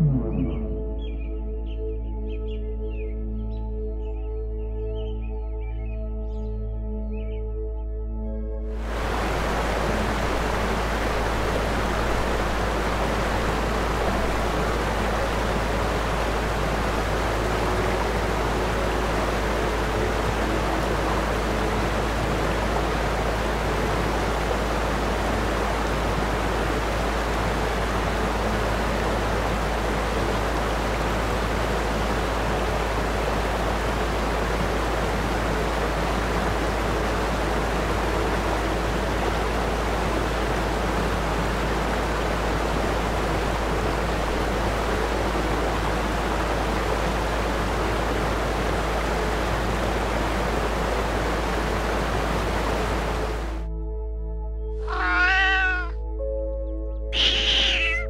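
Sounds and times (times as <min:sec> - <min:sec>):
faint low tones: 0:00.0 - 0:01.7
steady rushing noise: 0:08.7 - 0:53.7.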